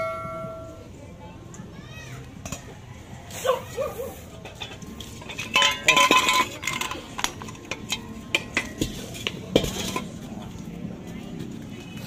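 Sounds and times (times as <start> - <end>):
steel pieces clanking on gas cylinder: 4.4 - 10.1.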